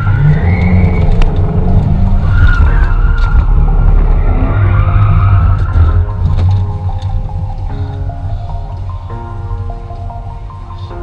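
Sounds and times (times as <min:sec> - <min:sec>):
tyres squealing: 0:00.0 - 0:08.5
car engine running hard: 0:00.0 - 0:11.0.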